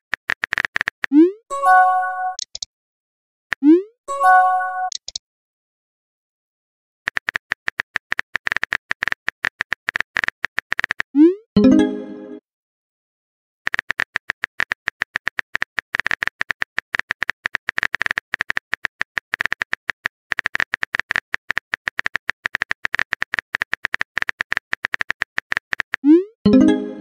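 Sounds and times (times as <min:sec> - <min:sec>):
phone keyboard typing clicks: 0:02.3 - 0:02.7, 0:04.9 - 0:05.2, 0:07.1 - 0:11.1, 0:13.7 - 0:26.1.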